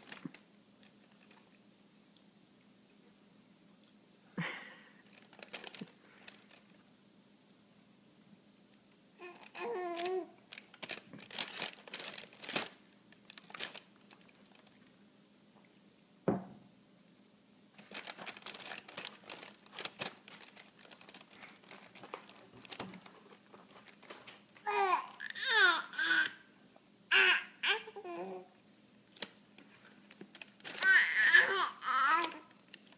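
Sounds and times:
plastic bag crinkling: 0.0 - 1.5, 4.4 - 6.8, 9.2 - 14.9, 17.7 - 24.7, 29.1 - 32.9
baby cooing: 9.2 - 10.4, 24.6 - 26.5, 27.1 - 28.5, 30.8 - 32.5.

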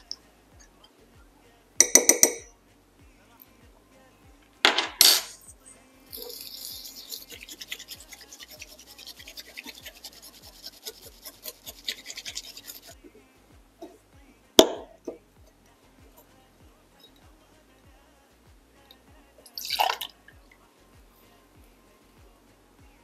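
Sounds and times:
bamboo whisk swishing in bowl: 5.7 - 13.2.

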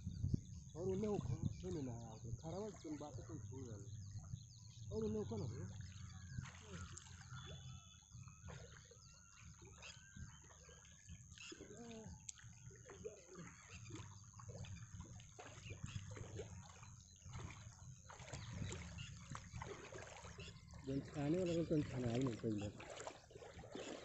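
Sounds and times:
low wind rumble: 0.0 - 6.4
shallow water splashing: 0.2 - 24.0.

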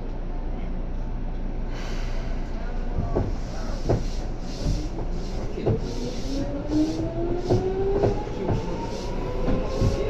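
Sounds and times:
wheels clacking over rail joints: 3.0 - 10.0
train motor whine rising: 4.5 - 10.0.

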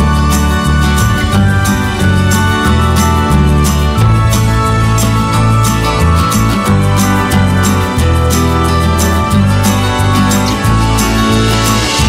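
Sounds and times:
loud music with heavy bass: 0.0 - 12.0.

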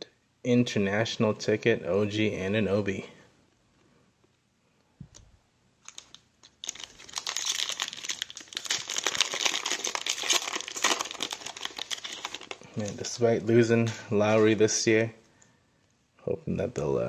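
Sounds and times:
foil wrapper crinkling: 5.8 - 13.1.

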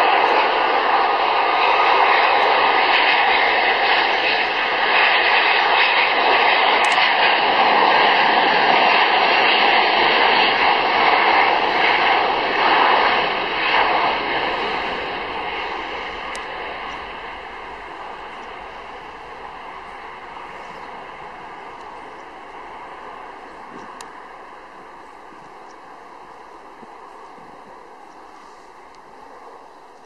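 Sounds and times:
high steady fan tones: 0.0 - 30.0
jet engine noise: 0.0 - 30.0.

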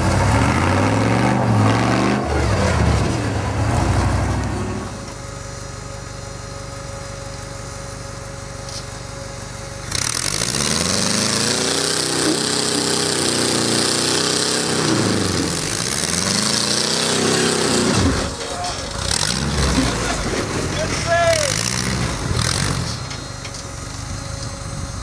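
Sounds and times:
buggy engine revving: 0.0 - 5.1, 9.8 - 23.2.

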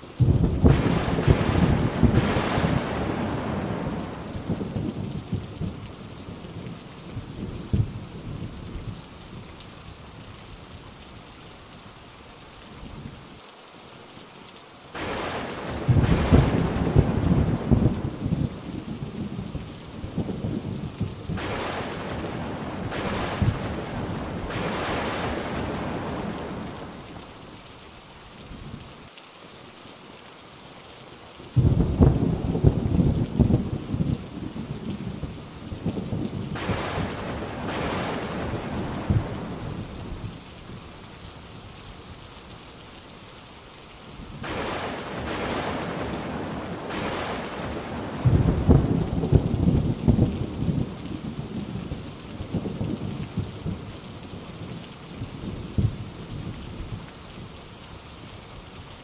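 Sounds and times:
rain hissing: 0.0 - 59.0
loud thunder clap: 0.2 - 4.9, 15.0 - 18.2, 21.3 - 26.7, 36.6 - 39.5, 44.4 - 50.3
thunder rumbling: 0.2 - 8.6, 15.0 - 27.2, 31.6 - 40.8, 44.3 - 53.8.

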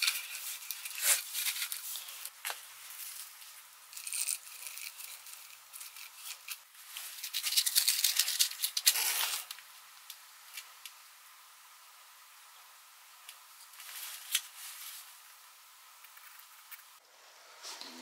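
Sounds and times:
matchbox rattling: 7.2 - 9.5.

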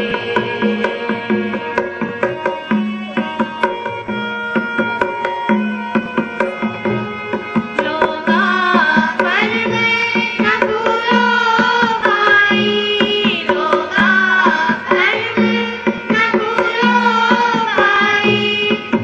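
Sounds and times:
held melodic notes: 0.0 - 9.2
tabla playing a rhythm: 0.0 - 19.0.

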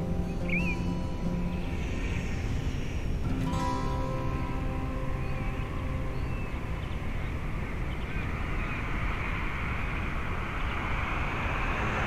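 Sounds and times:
music: 0.0 - 7.9
wind buffeting microphone: 0.0 - 12.0.

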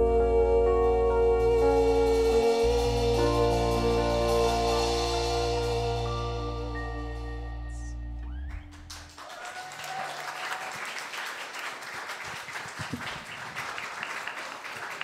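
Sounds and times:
backing music held notes: 0.0 - 9.1
audience applauding: 8.5 - 15.0.

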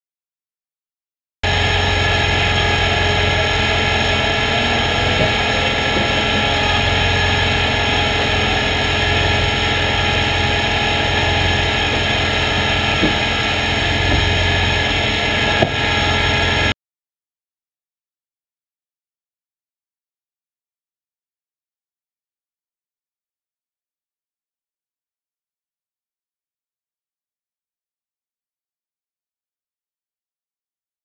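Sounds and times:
car engine idling: 1.4 - 16.7.

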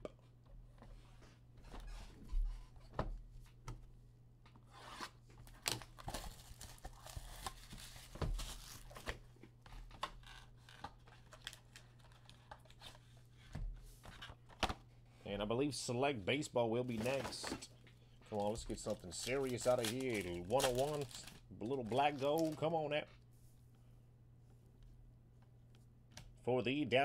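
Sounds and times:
wrapping tearing and crinkling: 5.4 - 9.2, 10.2 - 13.0, 18.3 - 22.7.

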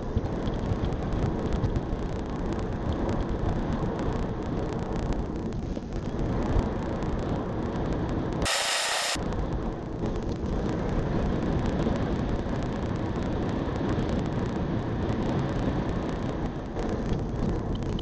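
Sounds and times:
tyre road noise inside car: 0.0 - 8.4, 9.0 - 18.0
wind rushing: 8.5 - 9.2.

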